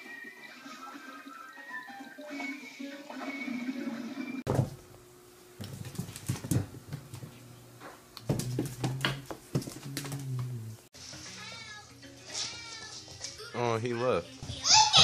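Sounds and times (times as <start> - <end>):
video game music from tv: 0.0 - 4.5.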